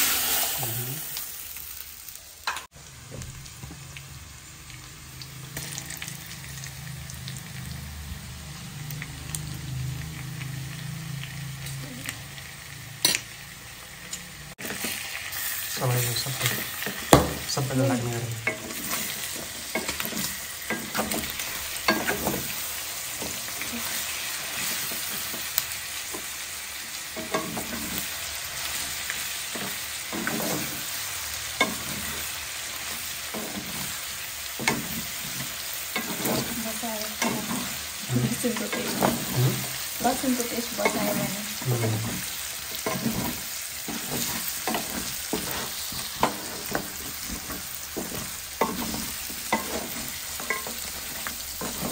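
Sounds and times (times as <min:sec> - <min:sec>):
food sizzling in a pan: 0:00.0 - 0:51.9
spatula scraping a pan: 0:16.0 - 0:25.5, 0:27.2 - 0:51.9.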